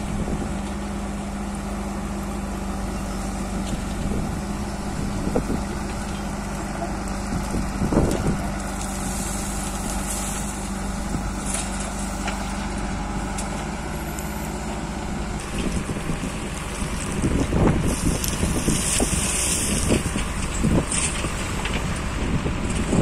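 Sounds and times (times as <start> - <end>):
wind noise on microphone: 0.0 - 0.6, 3.5 - 6.2, 7.1 - 11.7, 15.5 - 23.0
diesel engine running: 0.0 - 23.0.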